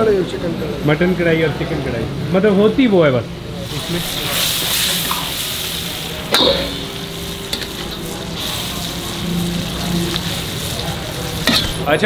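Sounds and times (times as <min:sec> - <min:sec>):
meat sizzling in a wok: 0:03.6 - 0:12.0
metal spatula scraping a pan: 0:11.4 - 0:11.9.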